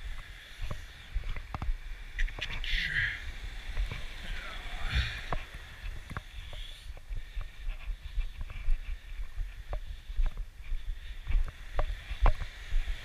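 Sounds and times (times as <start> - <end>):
footsteps crunching on pebble beach: 0.0 - 13.0
wind rumbling on microphone: 0.0 - 13.0
surf hissing: 1.8 - 6.9.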